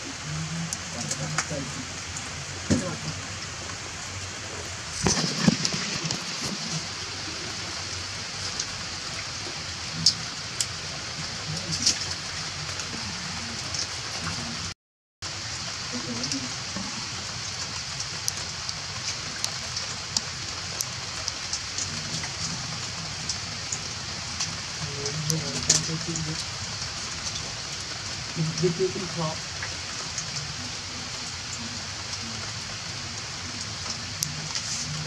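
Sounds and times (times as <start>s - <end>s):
steady rain falling: 0.0s - 35.0s.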